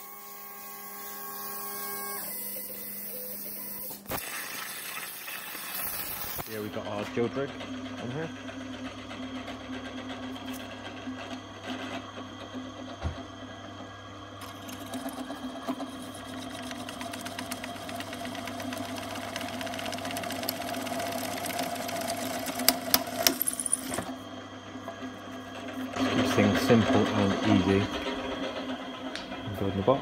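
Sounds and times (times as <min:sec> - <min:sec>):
drill motor hum: 0:00.0 - 0:04.2, 0:14.1 - 0:30.0.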